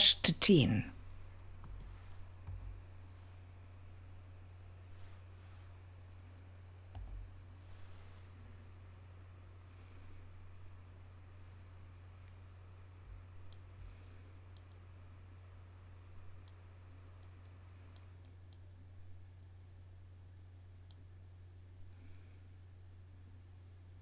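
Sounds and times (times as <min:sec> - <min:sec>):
low steady hum: 0:00.0 - 0:24.0
computer mouse clicks: 0:06.9 - 0:07.3, 0:13.5 - 0:13.8, 0:14.5 - 0:14.8, 0:17.2 - 0:18.6.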